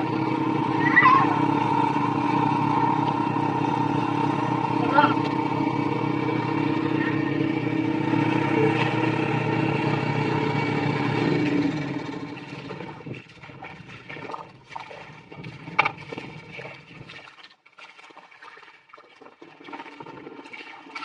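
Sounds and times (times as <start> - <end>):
small engine running: 0.0 - 17.2
mud and water splashing: 0.0 - 21.0.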